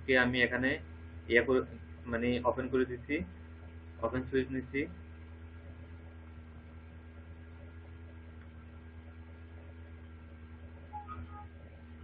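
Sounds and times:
electrical mains hum: 0:00.0 - 0:12.0
steady tones: 0:10.9 - 0:11.7.

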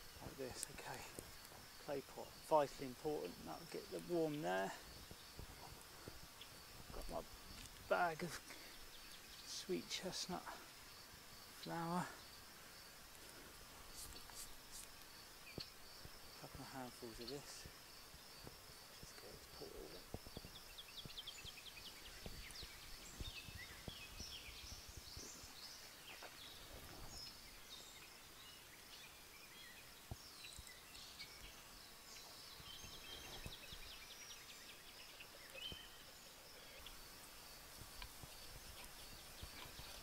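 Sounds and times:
birds chirping and trilling: 0:00.0 - 0:40.0
faint clicks: 0:37.9 - 0:40.0.

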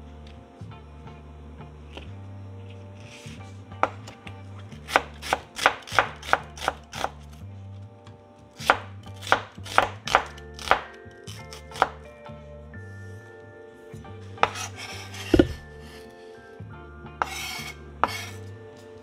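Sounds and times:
knife tapping cutting board: 0:15.3 - 0:15.7.

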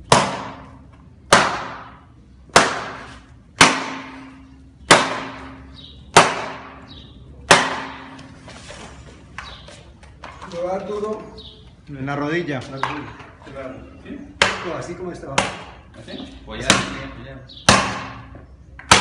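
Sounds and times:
baton striking plastic armour: 0:00.0 - 0:06.8, 0:07.5 - 0:08.3, 0:17.7 - 0:19.0.

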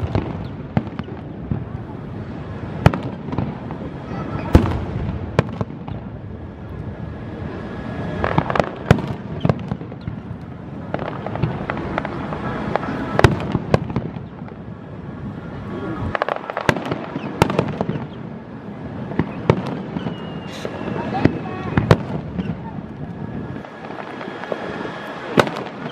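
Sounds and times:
firework shells bursting: 0:19.0 - 0:25.9.

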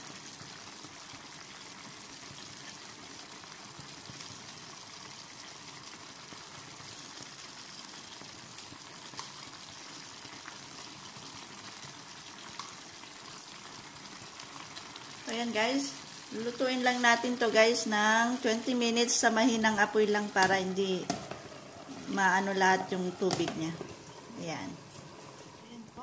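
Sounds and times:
sauce bubbling in a pan: 0:00.0 - 0:26.0
soft knocks in a pan: 0:20.4 - 0:21.5, 0:23.2 - 0:24.0.

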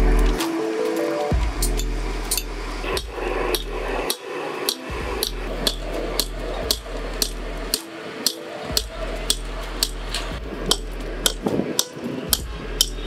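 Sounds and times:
hammer blows: 0:01.3 - 0:13.0
low steady hum: 0:01.4 - 0:07.8.

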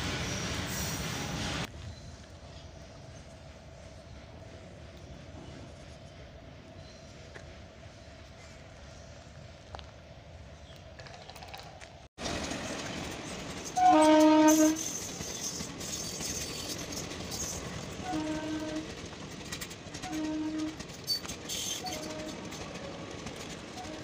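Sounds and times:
train wheels rumbling and clattering: 0:10.6 - 0:24.0
train horn blasts: 0:13.8 - 0:15.0, 0:18.0 - 0:18.9, 0:20.0 - 0:20.8, 0:21.7 - 0:22.5, 0:23.8 - 0:24.0.

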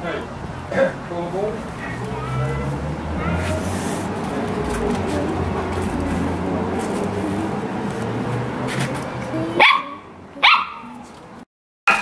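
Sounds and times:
puppy barking: 0:09.6 - 0:11.0.

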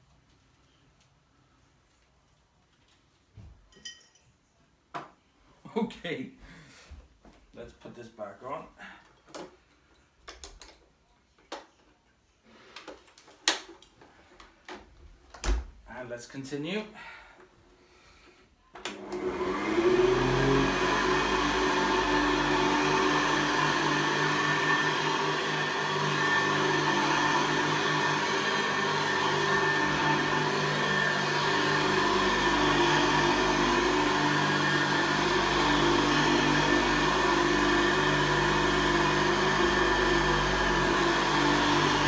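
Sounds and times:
vacuum cleaner motor: 0:18.8 - 0:42.0.

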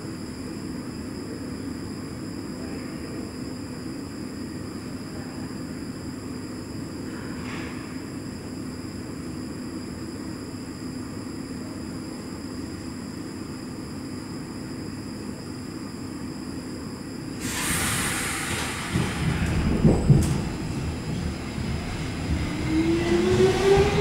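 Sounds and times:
metro railcar hum and rumble: 0:00.0 - 0:24.0
loud hiss: 0:17.4 - 0:22.5.

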